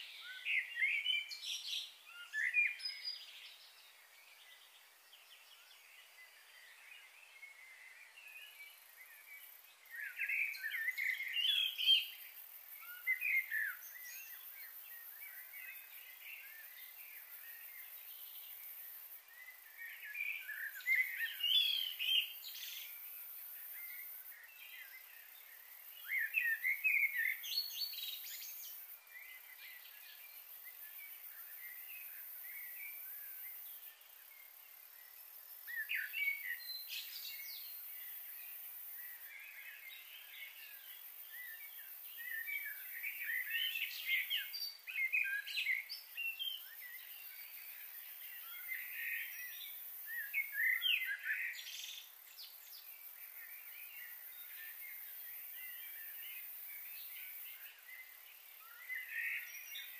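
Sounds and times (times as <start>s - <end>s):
faint high hiss: 0.0s - 59.9s
songbird chirping: 0.0s - 59.9s.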